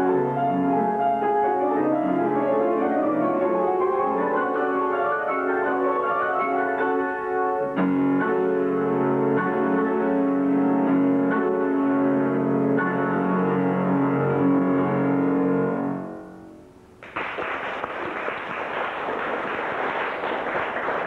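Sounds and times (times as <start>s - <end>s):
piano chords: 0.0s - 17.0s
audience applause: 17.0s - 21.0s.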